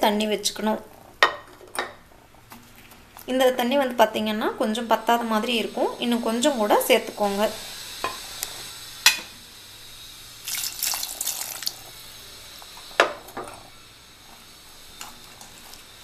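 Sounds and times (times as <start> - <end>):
water splashing into a pot: 10.4 - 12.0.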